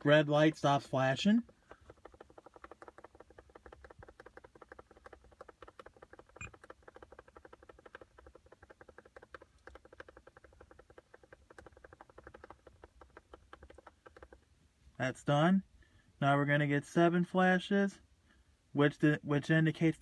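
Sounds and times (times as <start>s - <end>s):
rapid even clicking: 0.0s - 14.5s.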